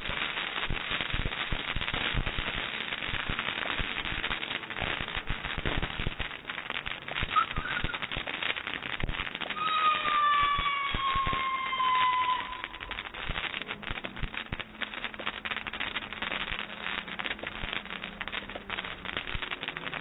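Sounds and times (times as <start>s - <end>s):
fireworks fountain crackling: 0.0s - 20.0s
falling tone with overtones: 9.6s - 13.1s.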